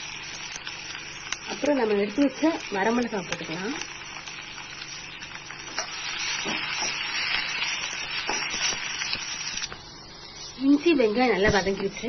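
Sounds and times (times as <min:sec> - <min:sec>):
vegetables sizzling in hot oil: 0:00.0 - 0:12.0.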